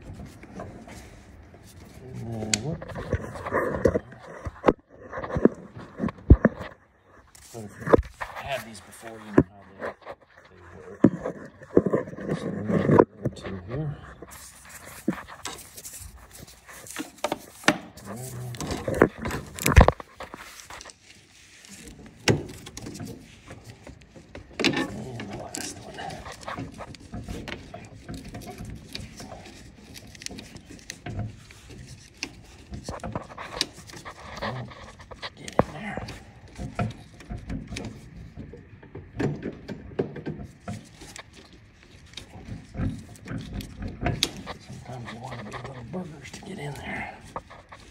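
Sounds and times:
metal hose couplers knocking and clicking: 21.8 - 44.8.

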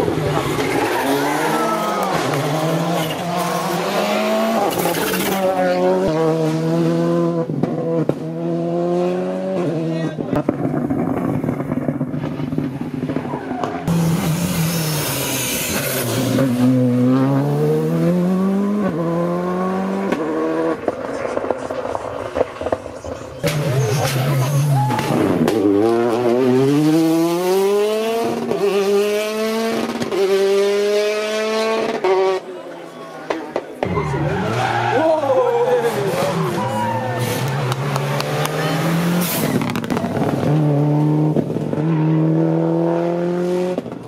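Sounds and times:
rally car engines revving: 0.0 - 44.0.

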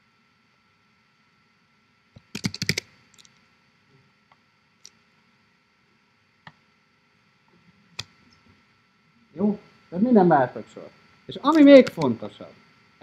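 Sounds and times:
laptop clicks: 2.2 - 3.3.

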